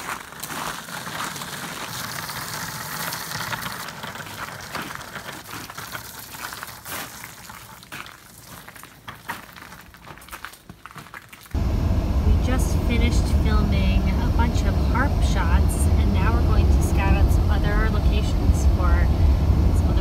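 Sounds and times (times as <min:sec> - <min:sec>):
footsteps in snow: 0:00.0 - 0:01.9
small wheels rolling over snow: 0:00.0 - 0:11.6.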